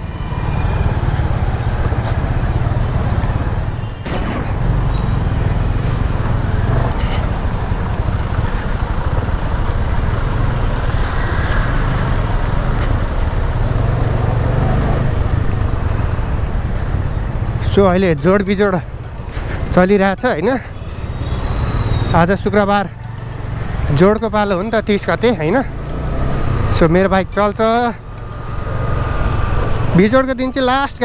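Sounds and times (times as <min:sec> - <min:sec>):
road noise: 0:00.0 - 0:31.0
motorcycle engine running: 0:04.6 - 0:19.3.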